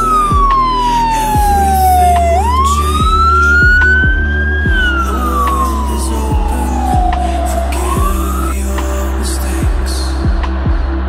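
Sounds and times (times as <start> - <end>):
background music with drum beat: 0.0 - 5.7, 6.3 - 7.3, 7.9 - 8.4, 9.6 - 11.0
fire engine siren wailing: 0.0 - 11.0.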